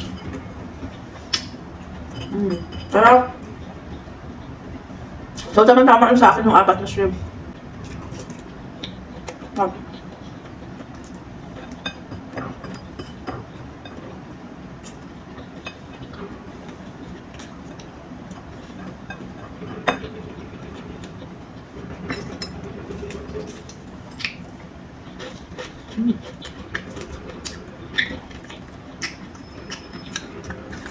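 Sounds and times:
chewing and mouth noises: 0:22.1 - 0:30.9.

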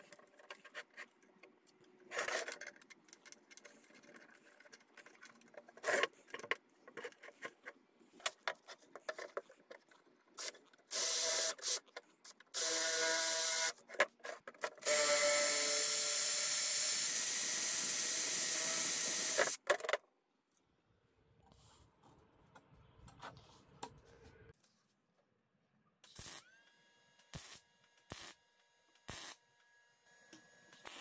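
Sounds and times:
drill whining into steel: 0:10.9 - 0:11.8, 0:12.6 - 0:13.8, 0:14.8 - 0:19.6.

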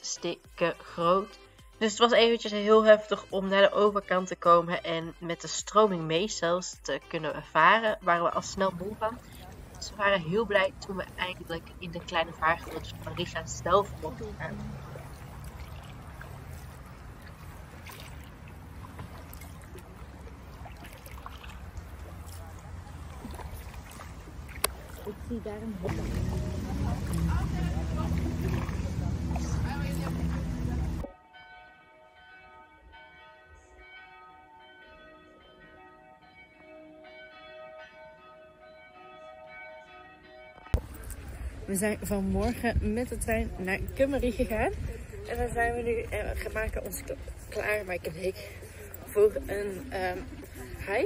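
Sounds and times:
paddle blades dipping in water: 0:08.5 - 0:31.1
steady low rumble: 0:21.5 - 0:31.0
faint bells ringing: 0:24.8 - 0:51.0.

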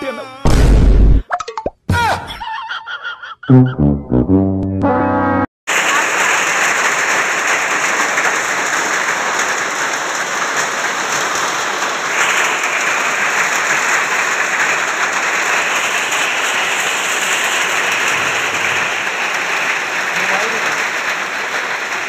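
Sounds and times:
hail and heavy rain pelting ground: 0:05.7 - 0:22.0.

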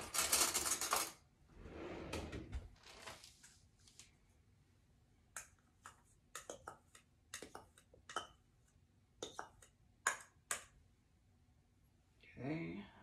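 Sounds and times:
spoon clicking against containers: 0:05.4 - 0:08.4, 0:09.2 - 0:10.8.

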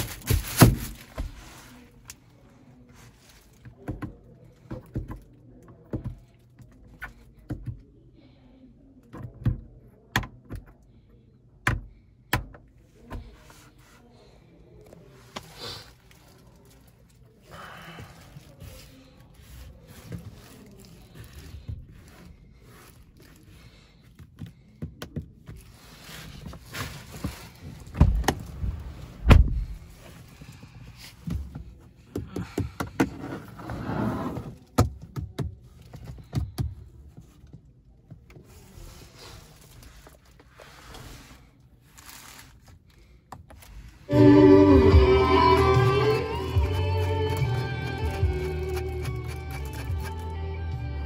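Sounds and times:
heavy thunks: 0:28.0 - 0:30.0
guitar music: 0:44.1 - 0:51.0.

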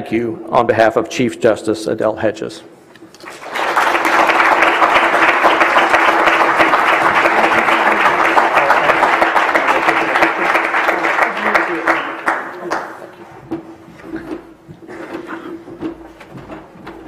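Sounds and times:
audience applauding: 0:03.1 - 0:13.4.

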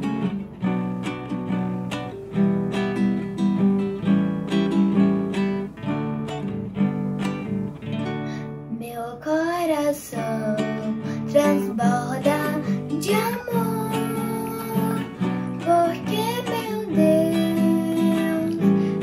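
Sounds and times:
acoustic guitar strumming: 0:00.0 - 0:19.0
girl singing: 0:08.2 - 0:19.0.

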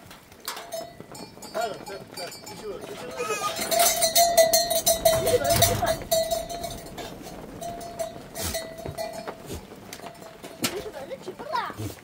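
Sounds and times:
knocks and clatter: 0:00.0 - 0:11.8
livestock bell ringing: 0:00.5 - 0:11.0.

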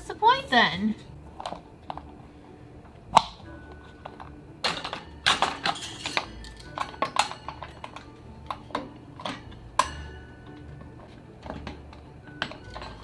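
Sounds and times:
plastic parts clicking and knocking: 0:03.1 - 0:13.0
wire cage bars rattling: 0:04.6 - 0:10.2.

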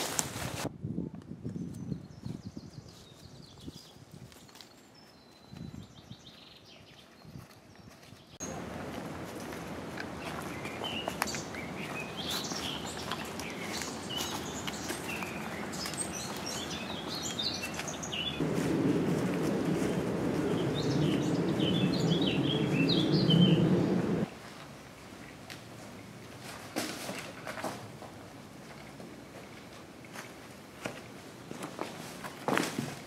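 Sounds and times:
songbirds chirping: 0:01.4 - 0:26.4
low rustling noise: 0:08.2 - 0:33.0.

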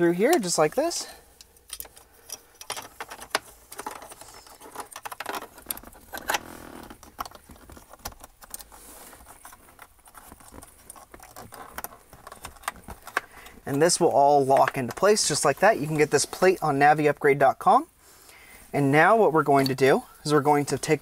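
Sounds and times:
plastic parts clicking and rattling: 0:01.4 - 0:15.6.

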